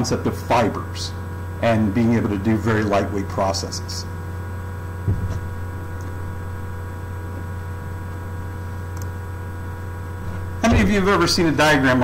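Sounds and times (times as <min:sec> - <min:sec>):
electrical mains hum: 0:00.0 - 0:12.0
short low thump: 0:05.0 - 0:05.6.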